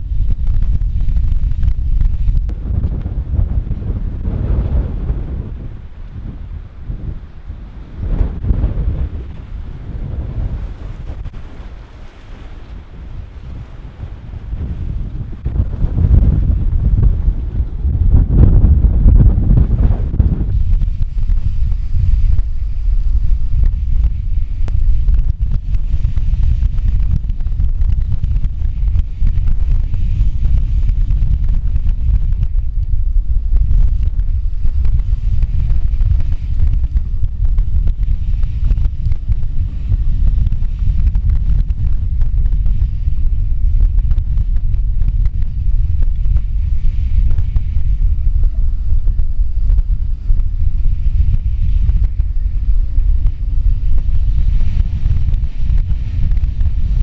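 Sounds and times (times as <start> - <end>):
wind buffeting microphone: 0.0 - 57.0
breaking waves and spray: 0.2 - 57.0.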